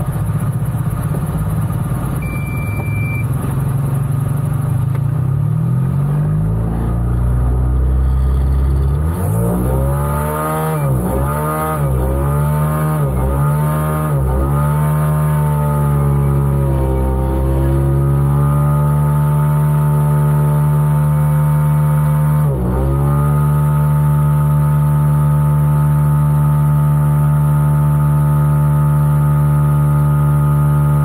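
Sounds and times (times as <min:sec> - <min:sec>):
two-stroke engine drone: 0:00.0 - 0:31.0
short electronic beep: 0:02.2 - 0:03.3.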